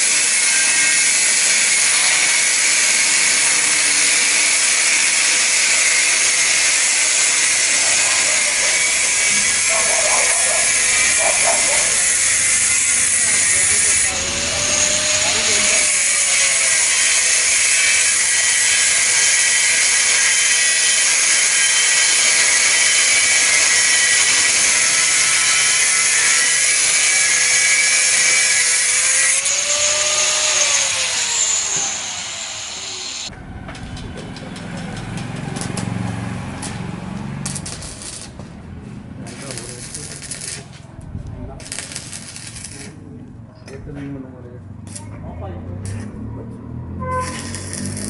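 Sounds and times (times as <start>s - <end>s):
angle grinder cutting steel: 0.0s - 33.3s, 35.2s - 38.4s, 39.2s - 40.8s, 41.6s - 43.0s, 46.9s - 48.0s
grinder disc spinning down: 47.2s - 48.0s.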